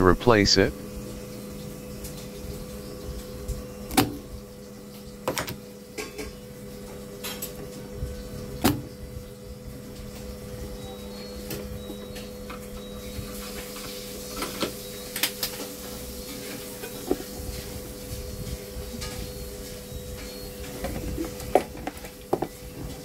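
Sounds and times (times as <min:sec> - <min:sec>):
steady low hum: 0:00.0 - 0:13.3.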